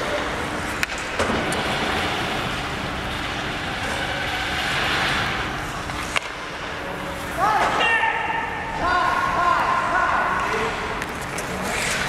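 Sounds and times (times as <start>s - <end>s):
skates scraping on ice: 11.1s - 12.0s.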